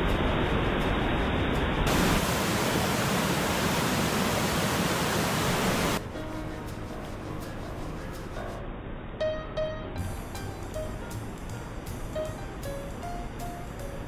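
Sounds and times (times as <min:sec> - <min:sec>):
loud rushing noise: 0:00.0 - 0:06.0
quiet hiss: 0:01.9 - 0:14.0
faint music: 0:06.0 - 0:14.0.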